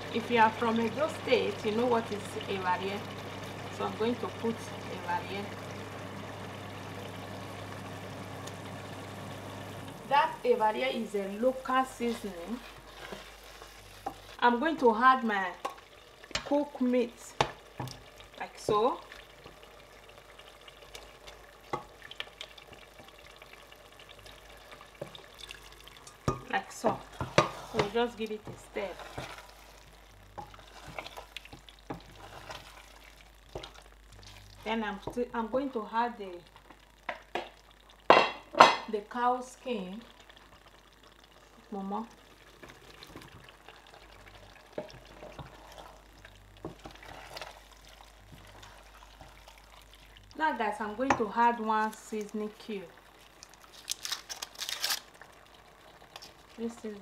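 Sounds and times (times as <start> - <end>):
crackles: 0.0 - 57.0
sauce sizzling in a pot: 0.0 - 57.0
wooden spoon stirring thick food: 10.9 - 16.7, 17.3 - 35.5, 42.1 - 53.7
wooden spoon knocking and scraping: 26.2 - 29.3.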